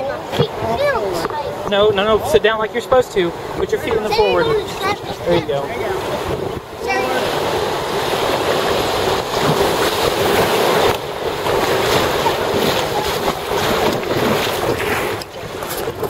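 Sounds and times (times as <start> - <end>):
whitewater rushing: 0.0 - 16.0
wind buffeting microphone: 0.0 - 16.0.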